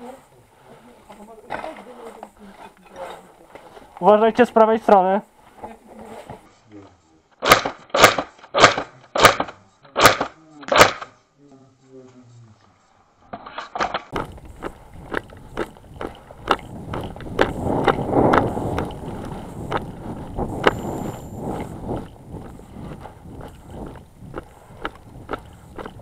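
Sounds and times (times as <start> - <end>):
grass rustling: 0.0 - 7.2, 11.4 - 26.0
footsteps through dry grass: 14.1 - 26.0.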